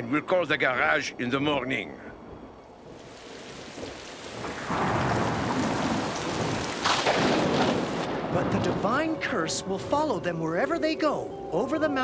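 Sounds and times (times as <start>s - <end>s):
heavy rain falling: 2.8s - 9.5s
thunder crash: 3.7s - 9.4s.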